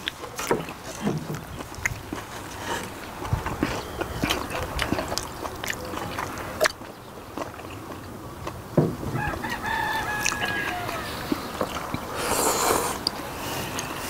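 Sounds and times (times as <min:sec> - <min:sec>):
chewing: 0:00.0 - 0:14.0
slurping noodles: 0:10.2 - 0:14.0.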